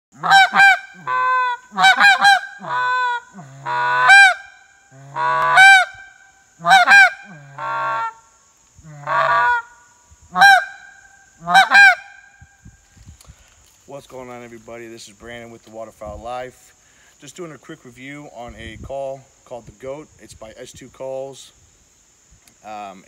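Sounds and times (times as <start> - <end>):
goose call honks: 0.2 - 8.2, 8.9 - 9.7, 10.4 - 10.8, 11.4 - 12.1.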